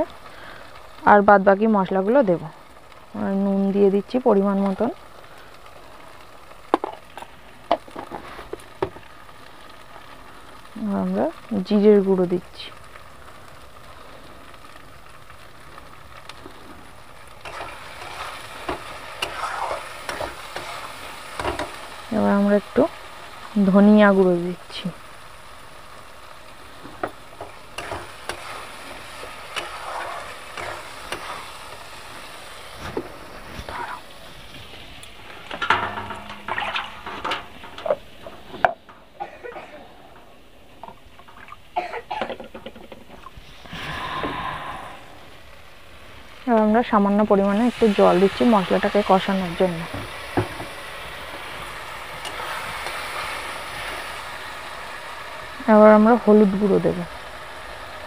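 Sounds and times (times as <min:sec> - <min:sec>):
spices sizzling in oil: 0:00.0 - 0:58.0
metal spatula scraping pan: 0:17.4 - 0:21.8, 0:27.4 - 0:31.5, 0:33.5 - 0:34.0, 0:35.4 - 0:38.7.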